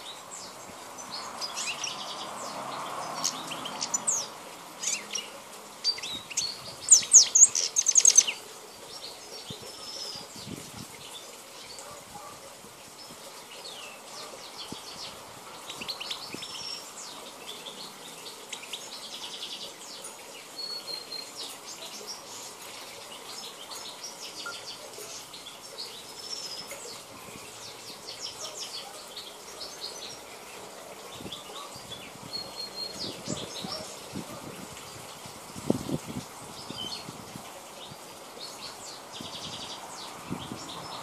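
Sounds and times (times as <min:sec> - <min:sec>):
goldfinch twittering song: 0:00.0 - 0:41.0.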